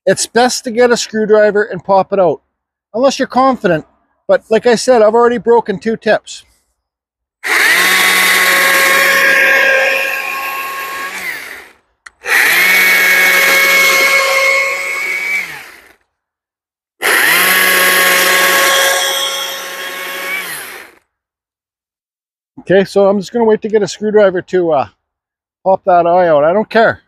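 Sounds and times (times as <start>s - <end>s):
electric chainsaw cutting wood: 7.4s - 16.0s, 17.0s - 21.0s.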